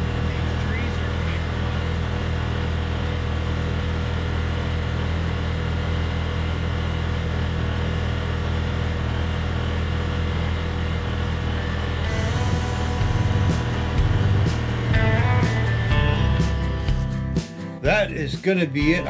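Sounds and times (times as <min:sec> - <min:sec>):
driving rushing noise: 0:00.0 - 0:04.9, 0:10.7 - 0:19.0
utility vehicle engine droning: 0:00.0 - 0:19.0.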